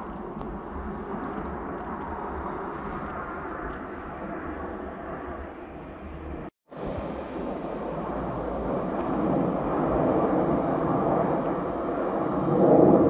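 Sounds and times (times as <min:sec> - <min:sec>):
jets flying past: 0:00.0 - 0:13.0.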